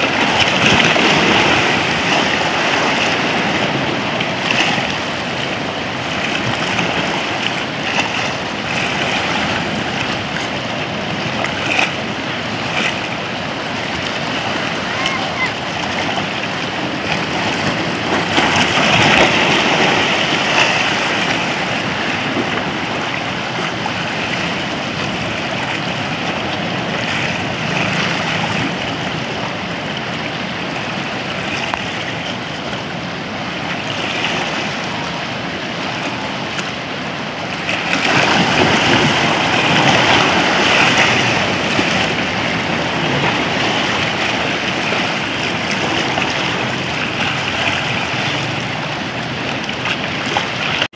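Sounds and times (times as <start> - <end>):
small waves surging: 0.0 - 50.9.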